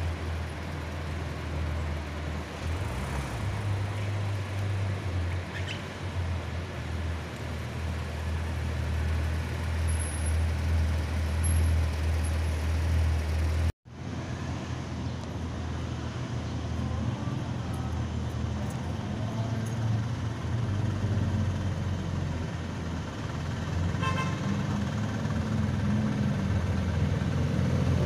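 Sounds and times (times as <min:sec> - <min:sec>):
street traffic noise: 0:00.0 - 0:28.0
car horn toot: 0:24.0 - 0:24.5.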